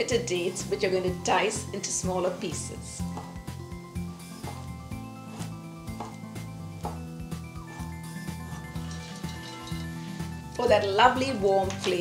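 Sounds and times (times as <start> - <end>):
background music with held notes: 0.0 - 12.0.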